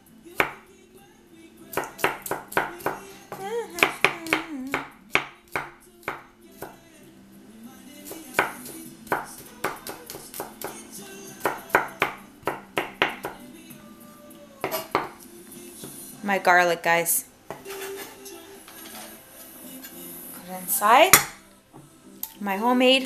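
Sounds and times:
background music: 0.0 - 23.0
knife chopping on wooden board: 1.7 - 3.0, 3.8 - 6.8, 8.1 - 10.8, 11.4 - 13.4, 14.7 - 15.2, 21.1 - 21.4.

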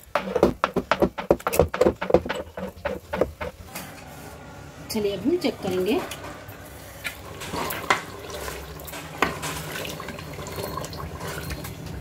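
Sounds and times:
sharp knocks against a pot: 0.0 - 3.6
liquid sloshing in a pot: 6.8 - 12.0.

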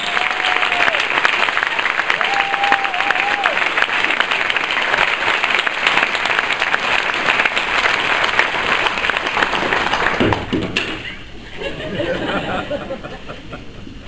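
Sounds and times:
audience applauding: 0.0 - 10.6.

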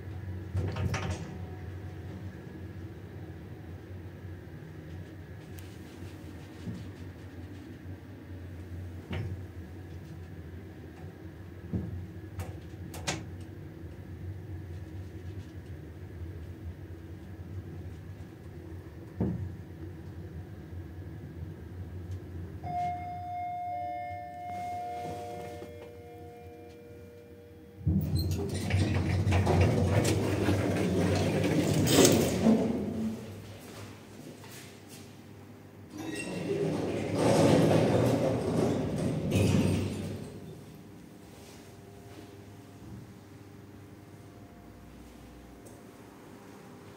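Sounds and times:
elevator low hum: 0.0 - 46.9
steel door panels sliding: 28.3 - 33.4, 36.0 - 40.8
door operator humming: 35.9 - 41.0
elevator short knocks: 36.0 - 40.8.

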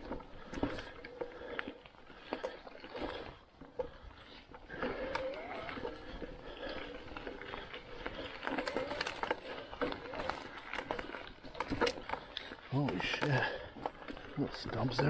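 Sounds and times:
tyres crunching through leaves: 4.1 - 15.0
twigs snapping: 6.5 - 14.0.

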